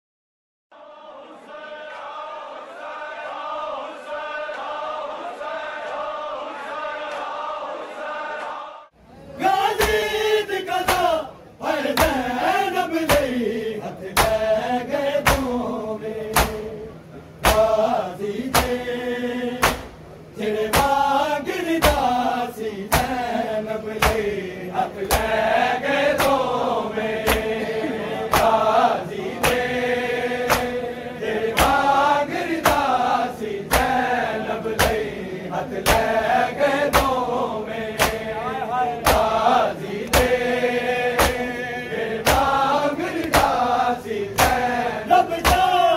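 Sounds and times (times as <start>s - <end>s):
men chanting in unison: 0.8s - 45.9s
hands beating bare chests: 15.2s - 15.5s, 16.3s - 16.6s, 17.4s - 17.7s, 18.5s - 18.8s, 19.6s - 20.0s, 21.8s - 22.1s, 22.9s - 23.2s, 24.0s - 24.3s, 28.3s - 28.6s, 34.8s - 35.0s, 36.9s - 37.2s, 38.0s - 38.2s, 39.0s - 39.4s, 40.1s - 40.4s, 41.2s - 41.5s, 42.2s - 42.6s, 43.2s - 43.6s, 44.3s - 44.7s, 45.4s - 45.8s.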